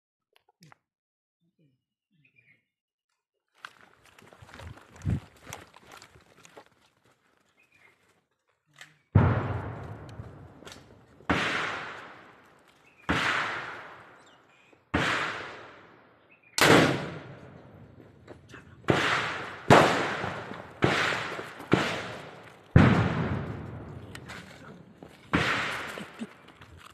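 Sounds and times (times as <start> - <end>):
rifle shots with echo: 9.2 - 18.0, 18.8 - 24.6, 25.2 - 26.2.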